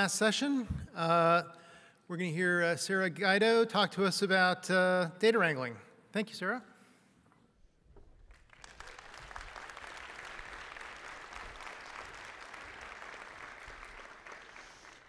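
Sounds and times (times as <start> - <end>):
audience applauding: 8.2 - 15.0.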